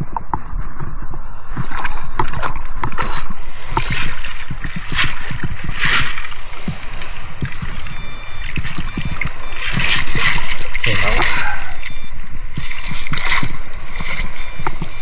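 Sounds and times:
knocks and gurgles: 0:00.0 - 0:15.0
water sloshing in shallow surf: 0:01.4 - 0:15.0
loud splashes: 0:03.0 - 0:15.0.

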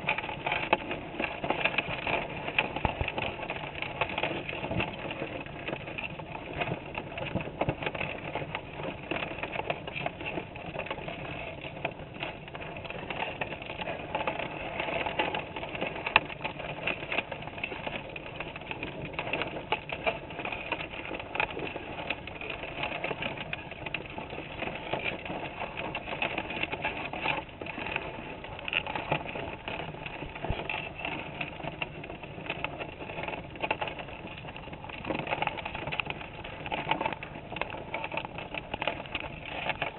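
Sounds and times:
underwater clicking and crackling: 0:00.0 - 0:39.9.

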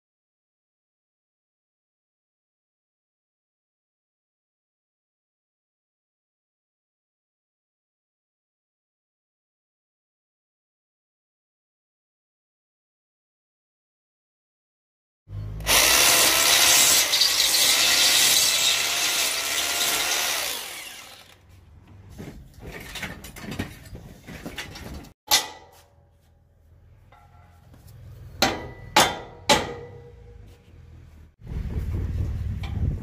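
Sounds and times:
electric drill running: 0:15.6 - 0:21.4.

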